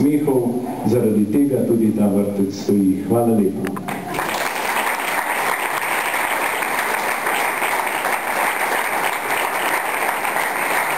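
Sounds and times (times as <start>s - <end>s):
audience applauding: 3.9s - 10.9s.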